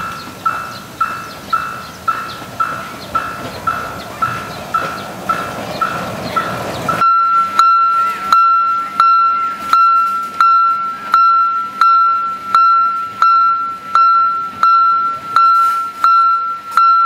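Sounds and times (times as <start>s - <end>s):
railroad crossing bell ringing: 0.0s - 17.0s.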